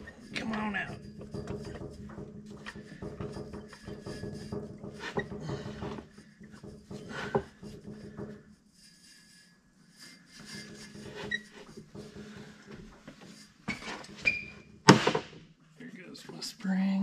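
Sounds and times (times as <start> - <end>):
metal scraping and clunking: 0.0 - 9.0, 9.9 - 15.4
sharp knock: 14.9 - 15.4.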